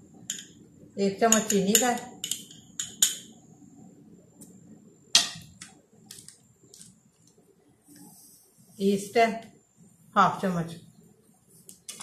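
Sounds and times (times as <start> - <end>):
metal spoon clinking on dishes: 0.2 - 0.6, 1.2 - 3.4, 5.2 - 5.6.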